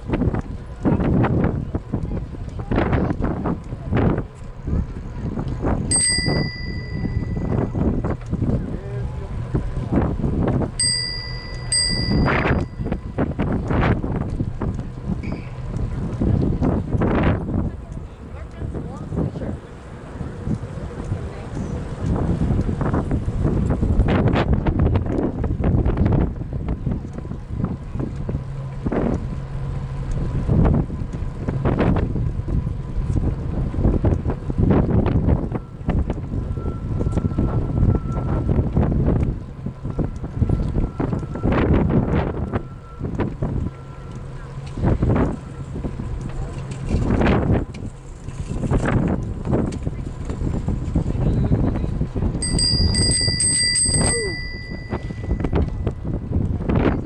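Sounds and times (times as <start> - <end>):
wind buffeting microphone: 0.0 - 57.0
bicycle bell ringing: 5.9 - 8.0, 10.8 - 13.0, 52.4 - 56.0.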